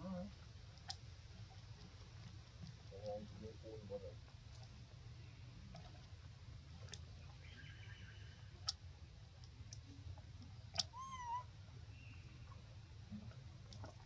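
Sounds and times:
baby monkey squeaky cry: 10.9s - 11.4s.

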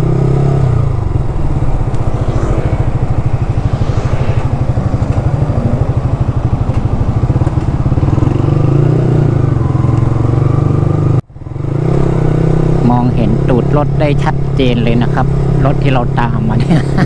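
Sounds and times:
motorcycle engine throbbing: 0.0s - 13.4s.

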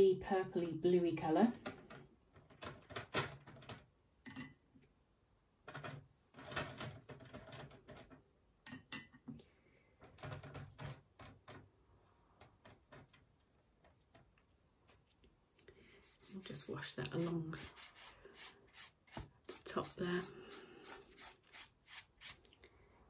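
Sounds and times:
brush tapping and scraping palette: 16.0s - 21.6s.

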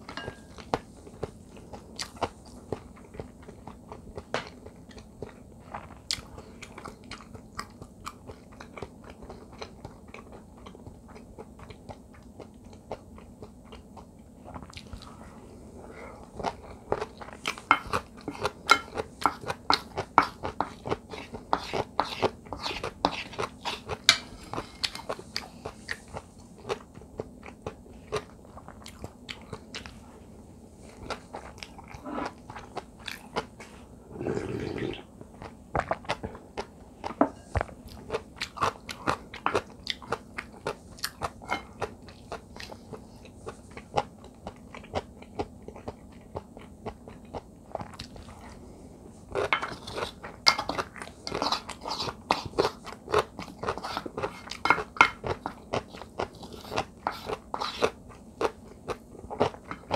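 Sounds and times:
chewing and crunching food: 0.0s - 59.9s
sipping soup: 34.1s - 35.0s.

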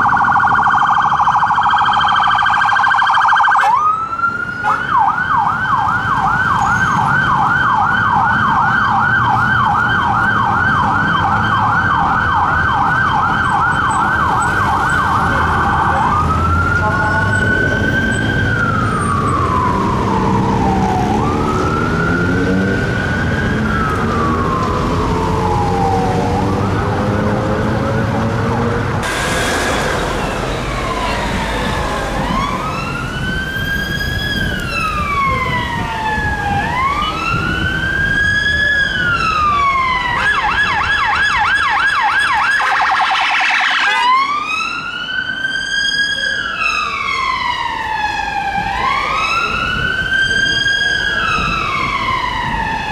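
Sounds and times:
siren rapid yelp: 0.0s - 27.2s, 29.0s - 52.9s
emergency vehicle sirens wailing: 0.0s - 52.9s
vehicle engine accelerating: 14.1s - 35.0s.

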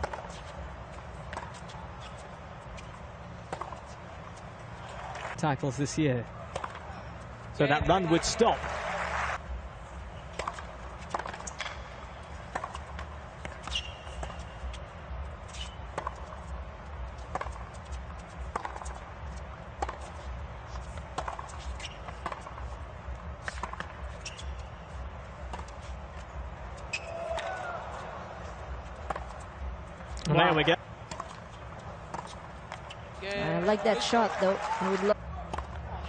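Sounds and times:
rackets striking tennis ball: 6.5s - 6.9s, 10.3s - 14.8s, 17.2s - 19.0s, 21.0s - 22.7s, 23.4s - 24.7s, 26.8s - 28.1s, 28.9s - 29.5s, 31.0s - 33.0s.

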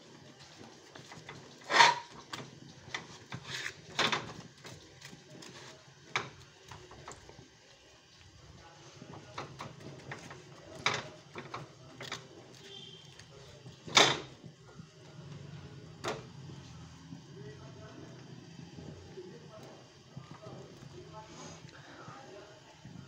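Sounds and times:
knocks and clatters of pan: 0.9s - 4.8s, 6.0s - 7.2s, 9.1s - 12.3s, 13.8s - 14.4s.

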